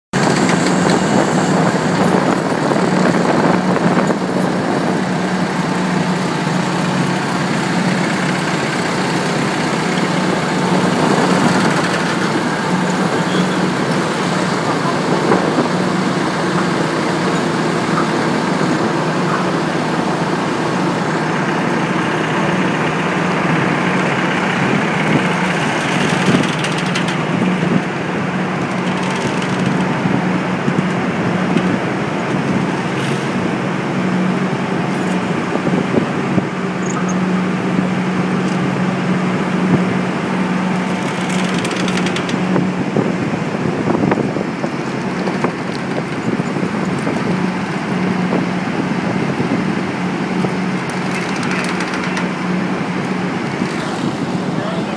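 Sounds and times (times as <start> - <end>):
heavy machinery droning: 0.2 - 54.9.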